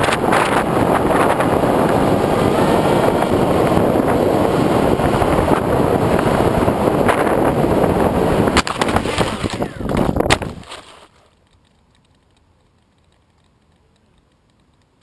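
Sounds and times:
wind rushing across microphone: 0.0s - 10.7s
electric motor and propeller: 0.0s - 12.2s.

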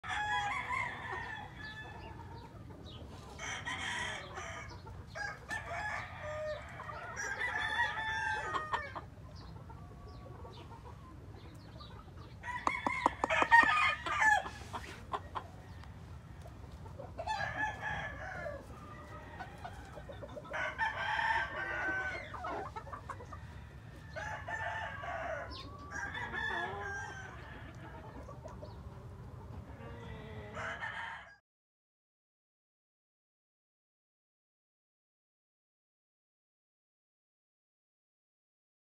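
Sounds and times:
roosters crowing: 0.0s - 2.6s, 3.2s - 9.2s, 12.3s - 28.4s, 29.6s - 31.4s
hens clucking: 0.2s - 30.8s.

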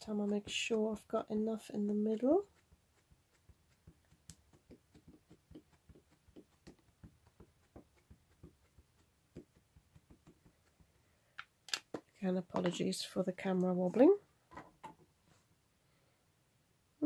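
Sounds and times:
ink pad dabbing on stamp: 0.0s - 11.0s.

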